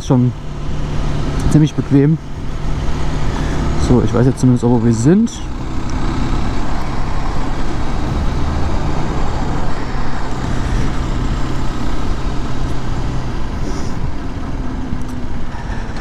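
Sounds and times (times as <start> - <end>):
motorcycle engine running: 0.0 - 16.0
steady rushing noise: 0.2 - 16.0.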